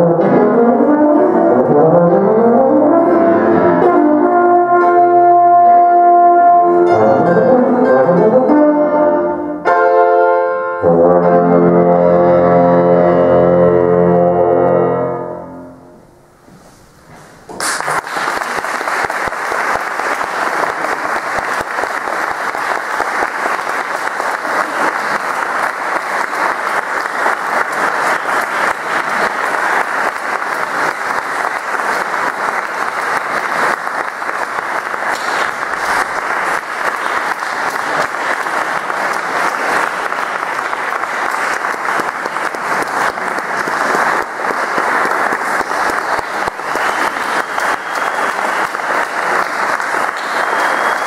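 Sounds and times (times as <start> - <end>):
audience applause: 17.5 - 51.0.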